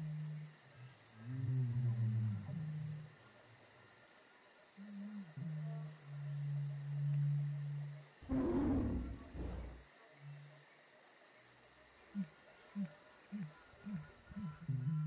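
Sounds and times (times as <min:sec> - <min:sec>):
cricket-like chirping: 0:00.0 - 0:15.0
deep animal roar: 0:08.2 - 0:09.8.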